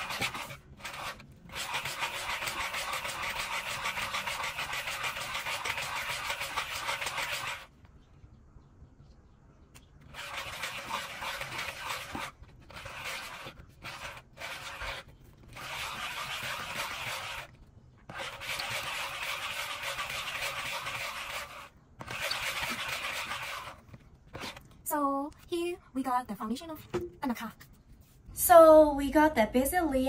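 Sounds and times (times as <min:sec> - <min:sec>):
bark grinding on wet stone: 0:00.0 - 0:07.7, 0:10.0 - 0:24.7.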